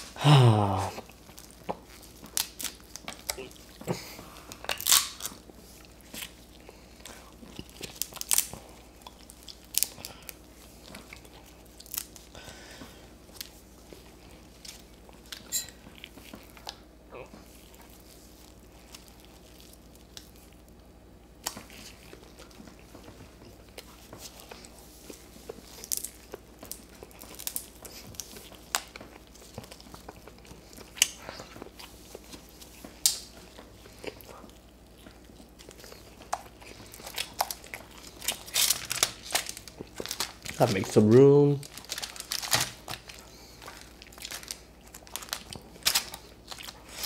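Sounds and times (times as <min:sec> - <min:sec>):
person chewing: 0:00.0 - 0:20.8, 0:21.4 - 0:40.8, 0:41.6 - 0:47.0
crab shells cracking: 0:04.6 - 0:05.4, 0:07.6 - 0:10.4, 0:25.8 - 0:30.1, 0:36.2 - 0:40.8, 0:41.6 - 0:46.8.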